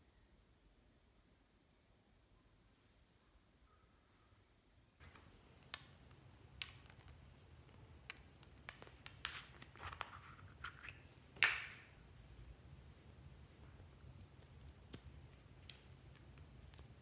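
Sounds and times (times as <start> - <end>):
faint low hum: 0.0 - 17.0.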